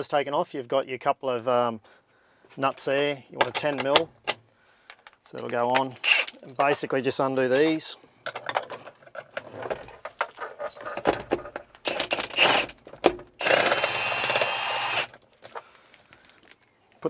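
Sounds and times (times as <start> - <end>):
metal tools clinking and rattling: 5.4 - 12.2
impact wrench running: 11.8 - 12.8, 13.4 - 15.2.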